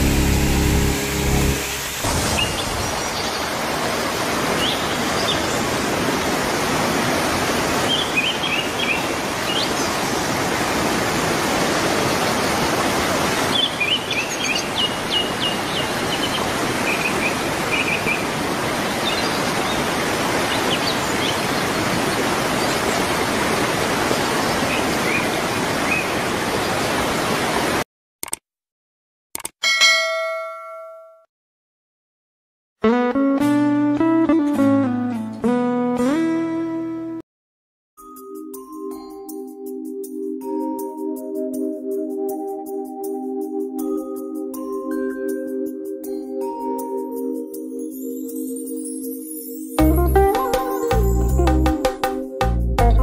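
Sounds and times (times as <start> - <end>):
water rushing over rocks: 1.2 - 27.8
birds chirping: 7.8 - 10.3, 13.4 - 21.8.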